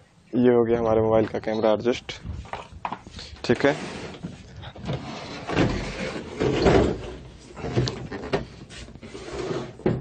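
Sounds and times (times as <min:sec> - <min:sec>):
television scraping across workbench: 0:03.5 - 0:04.3, 0:09.0 - 0:09.8.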